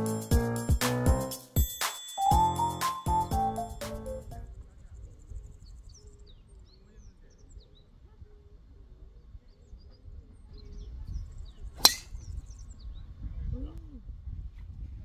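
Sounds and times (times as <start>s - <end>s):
golf club striking a ball: 11.8s - 12.1s.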